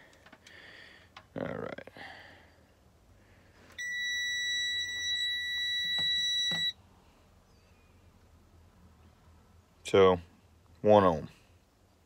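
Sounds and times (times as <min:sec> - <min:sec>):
high continuity beep: 0:03.8 - 0:06.8.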